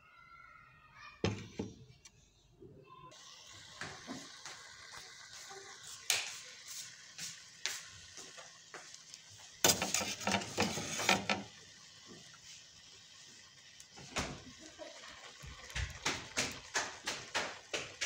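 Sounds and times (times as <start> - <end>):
paste sizzling in oil: 3.1 - 18.0
steel spoon scraping metal pan: 9.6 - 11.5.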